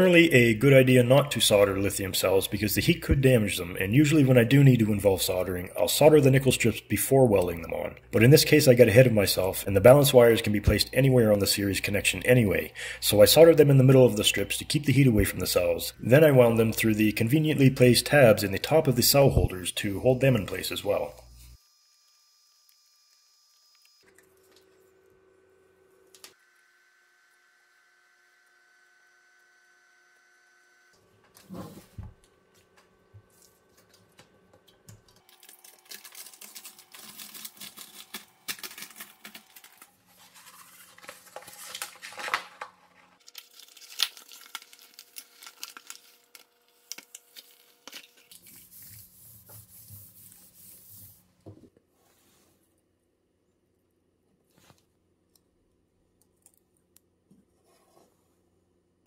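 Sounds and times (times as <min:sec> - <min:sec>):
scratchy rustling and tearing: 0:35.2 - 0:51.2.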